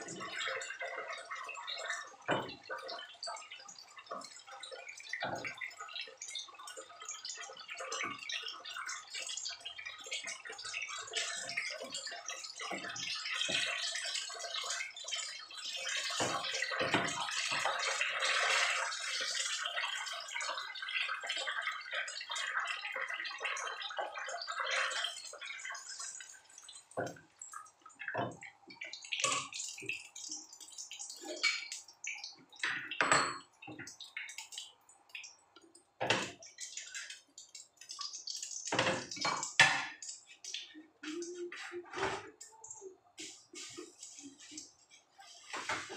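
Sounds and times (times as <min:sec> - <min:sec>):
oil sizzling in frying pan: 0:00.0 - 0:35.3, 0:36.0 - 0:40.7
clinks of utensils and dishes: 0:16.0 - 0:17.9, 0:32.6 - 0:33.9, 0:36.0 - 0:37.0, 0:38.7 - 0:40.0, 0:43.2 - 0:45.9.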